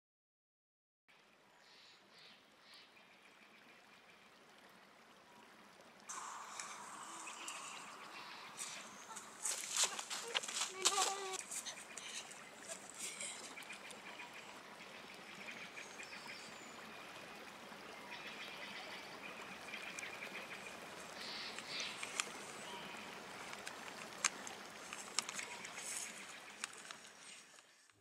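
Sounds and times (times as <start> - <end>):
dry leaves rustling: 6.1 - 13.5, 23.4 - 27.9
short bird calls: 6.1 - 14.5.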